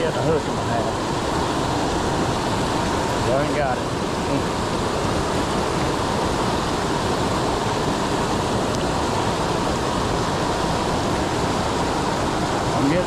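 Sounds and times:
river water rushing over rocks: 0.0 - 13.0.

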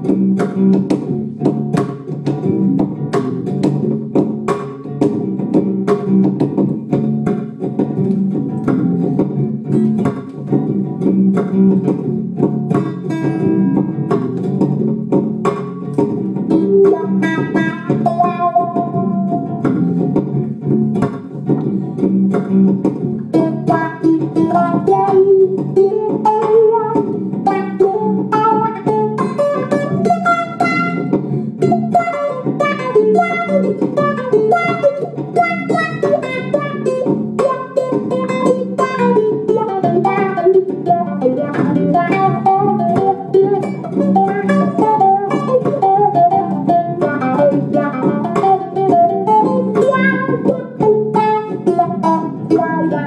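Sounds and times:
looped rhythm guitar: 0.0 - 53.0
reggae lead guitar: 0.0 - 53.0.

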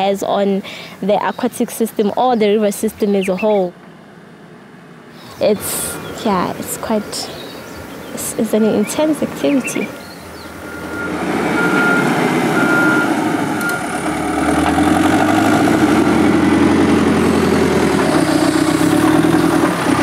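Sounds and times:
diesel engine running under load: 3.1 - 20.0
back-up alarm beeping: 10.6 - 13.9.

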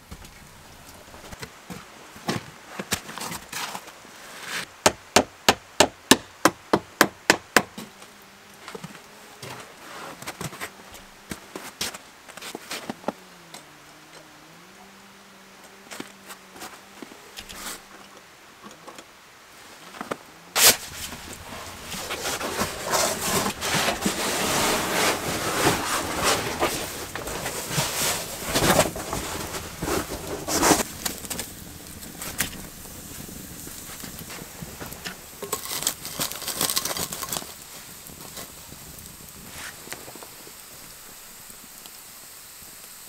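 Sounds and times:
wood fire crackling and popping: 20.2 - 43.0.

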